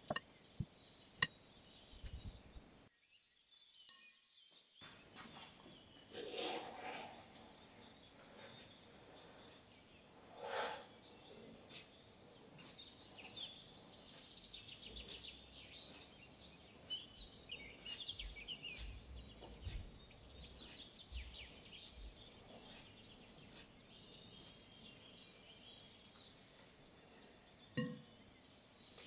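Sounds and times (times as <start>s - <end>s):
bird chirping: 0.0s - 29.0s
bird twittering trills: 5.1s - 26.6s.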